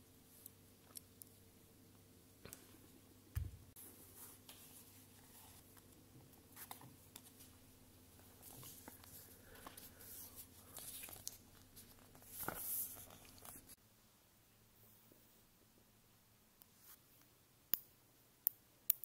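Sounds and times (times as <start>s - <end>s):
paper rustling: 8.2s - 13.8s.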